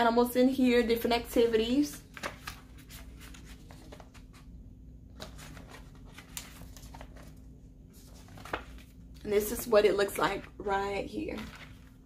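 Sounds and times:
paper pages flipping: 0:02.0 - 0:04.5, 0:05.1 - 0:10.6, 0:11.3 - 0:12.0.

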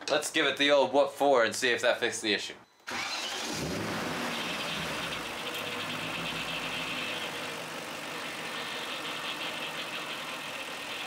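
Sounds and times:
car engine idling: 0:02.9 - 0:11.0.

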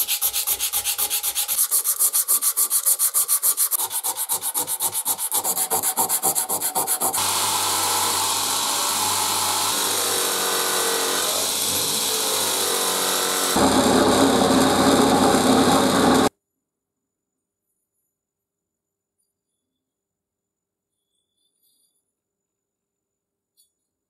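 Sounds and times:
sandpaper rubbing on metal: 0:00.0 - 0:07.3
bench grinder humming: 0:06.5 - 0:16.3
drill press grinding metal: 0:07.2 - 0:16.3.

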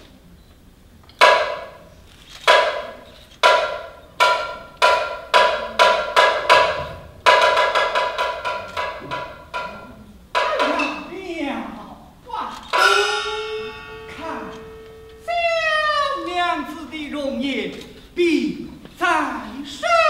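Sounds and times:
opera percussion ringing hits: 0:02.5 - 0:11.2, 0:12.6 - 0:17.4.

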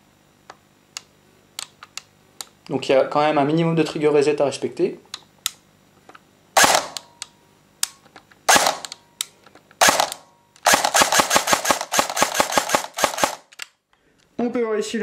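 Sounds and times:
airsoft gun shots: 0:06.6 - 0:07.1, 0:08.5 - 0:09.0, 0:09.8 - 0:13.5.

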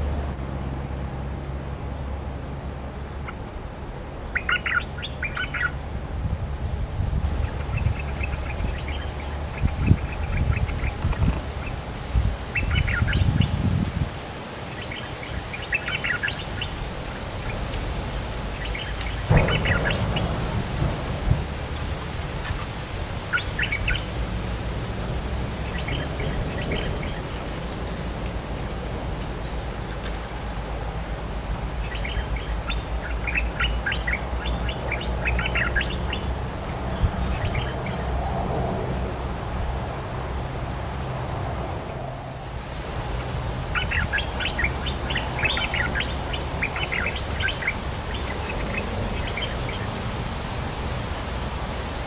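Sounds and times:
low rumbling noise: 0:00.0 - 0:52.0
bird chattering song: 0:04.3 - 0:05.8, 0:07.4 - 0:11.8, 0:12.5 - 0:13.7, 0:14.7 - 0:17.9, 0:18.5 - 0:20.4, 0:23.3 - 0:24.1, 0:25.6 - 0:28.4, 0:31.7 - 0:38.1, 0:43.2 - 0:49.9
low rumble: 0:17.0 - 0:33.6
bird singing bubbly notes: 0:18.6 - 0:20.3.

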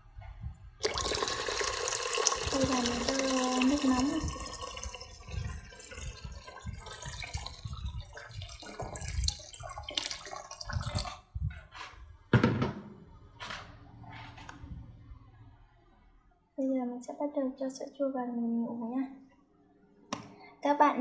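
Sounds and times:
water pouring into metal pot: 0:00.8 - 0:11.3.

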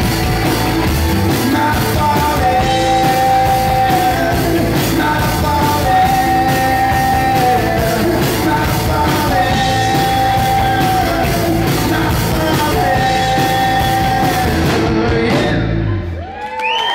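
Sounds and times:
live rock band playing: 0:00.0 - 0:16.2
person singing long notes: 0:01.4 - 0:16.0.

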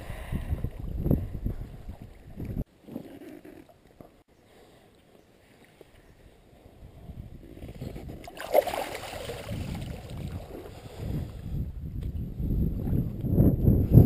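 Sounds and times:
fish splashing in shallow water: 0:07.8 - 0:11.0.

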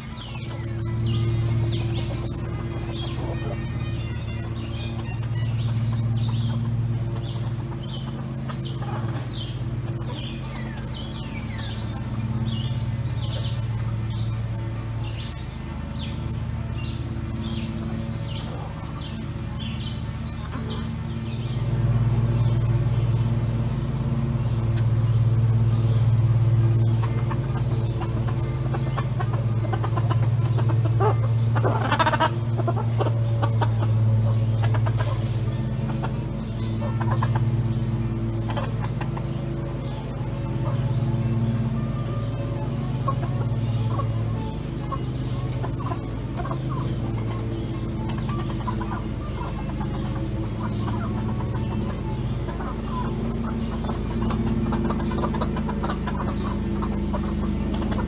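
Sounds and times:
chickens clucking: 0:00.0 - 0:58.0
songbirds chirping: 0:00.0 - 0:58.0
steady low hum: 0:00.0 - 0:58.0.

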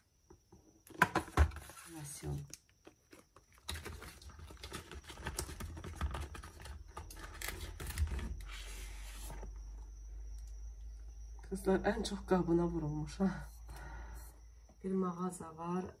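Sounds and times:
low steady hum: 0:07.8 - 0:16.0.

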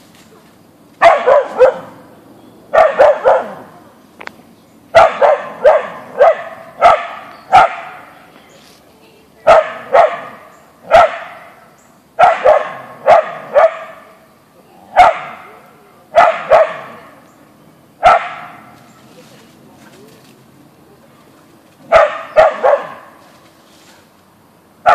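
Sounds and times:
dog barking: 0:01.0 - 0:02.0, 0:02.7 - 0:03.7, 0:04.9 - 0:08.1, 0:09.4 - 0:11.6, 0:12.2 - 0:14.1, 0:14.9 - 0:15.5, 0:16.1 - 0:17.1, 0:18.0 - 0:18.7, 0:21.8 - 0:23.1.

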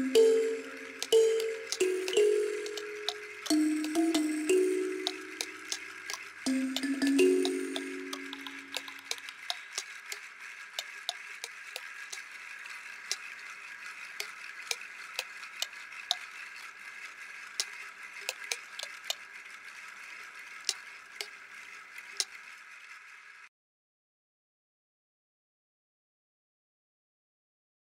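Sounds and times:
sharp clicks and crackles: 0:01.0 - 0:16.8, 0:17.5 - 0:19.5, 0:20.2 - 0:22.5.

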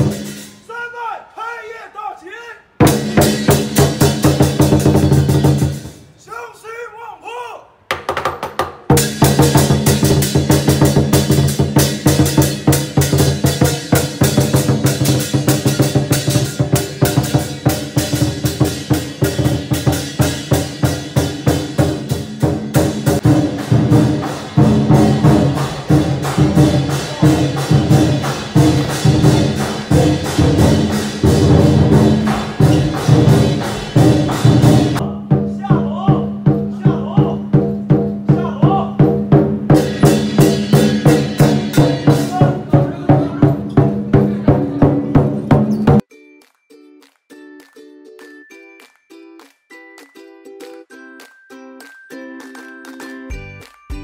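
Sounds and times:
clashing cymbals: 0:00.0 - 0:00.6, 0:02.8 - 0:06.2, 0:08.9 - 0:35.0, 0:39.0 - 0:44.2
large drum beating: 0:02.8 - 0:06.0, 0:08.9 - 0:46.0.

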